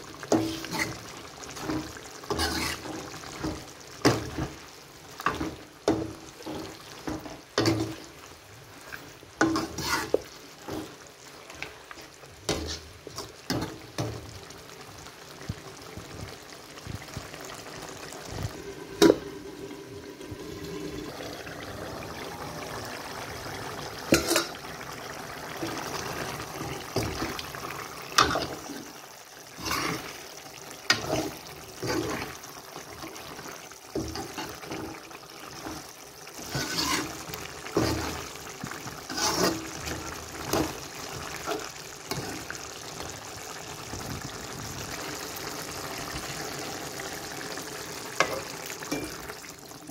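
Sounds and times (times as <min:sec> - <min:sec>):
curry sizzling: 0:00.0 - 0:49.9
ladle scraping metal pot: 0:00.2 - 0:04.6, 0:05.2 - 0:11.8, 0:12.5 - 0:14.1, 0:24.1 - 0:24.6, 0:25.6 - 0:28.8, 0:29.6 - 0:30.2, 0:34.0 - 0:42.6
metal pot lid clank: 0:24.1 - 0:24.6.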